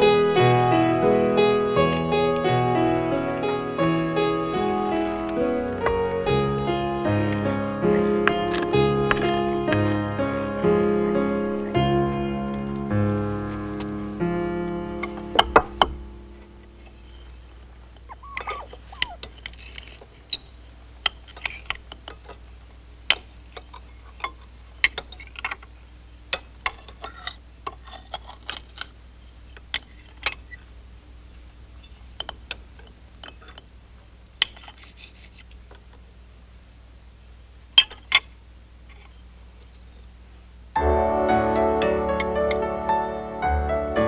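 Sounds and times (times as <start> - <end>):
low steady hum: 0.0 - 44.0
cutlery clinking on plates: 18.1 - 22.4.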